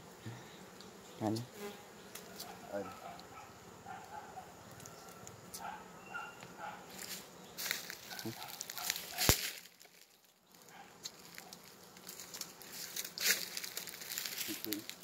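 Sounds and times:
footsteps crunching dry leaves: 6.9 - 15.0.

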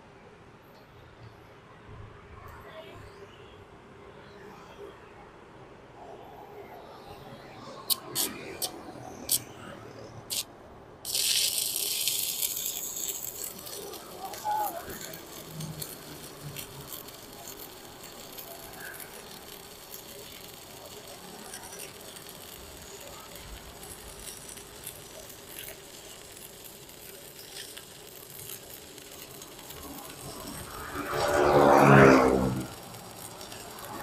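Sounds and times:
welding arc crackling: 7.8 - 9.5, 10.2 - 34.0.

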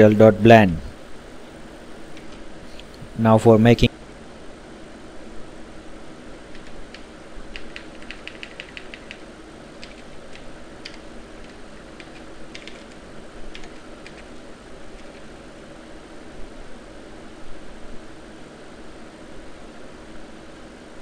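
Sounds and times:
background hiss: 0.0 - 21.0
keyboard keys clicking: 6.5 - 9.2, 9.8 - 14.3, 15.0 - 15.4.

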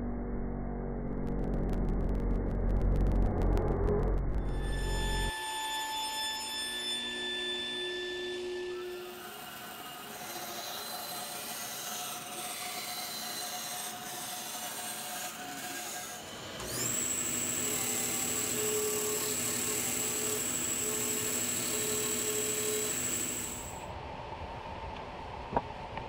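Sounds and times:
disc sander whining: 8.7 - 23.8
bandsaw cutting board: 8.9 - 23.8.

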